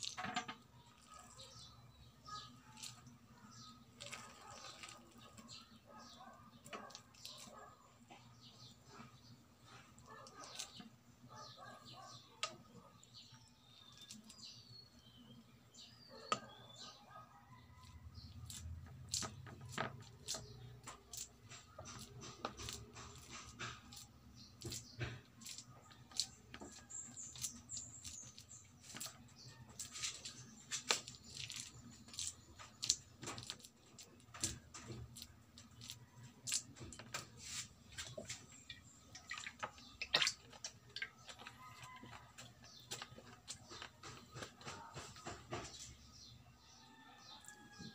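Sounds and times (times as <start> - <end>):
rice paddle tapping and scraping: 18.3 - 46.0.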